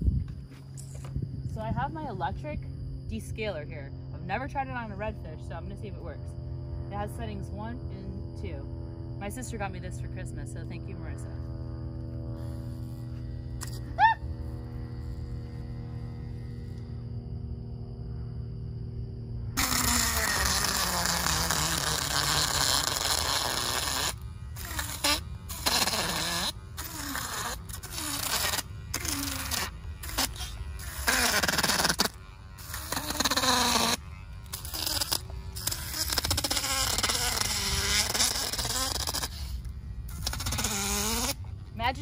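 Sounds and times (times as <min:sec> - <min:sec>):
electric fish descaler scraping scales: 0:19.6 - 0:42.0.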